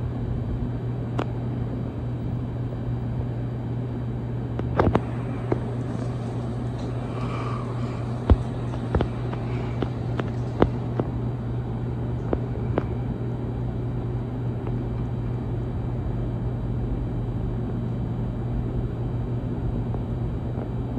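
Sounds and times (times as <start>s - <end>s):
ceiling fan motor hum: 0.0s - 20.9s.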